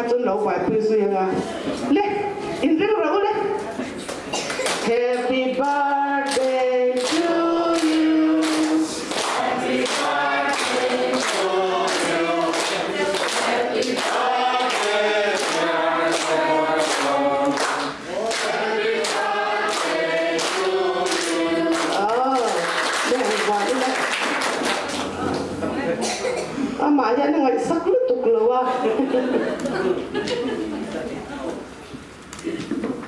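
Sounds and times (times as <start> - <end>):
people clapping in time: 4.5 - 25.5
group of people singing: 4.8 - 22.6.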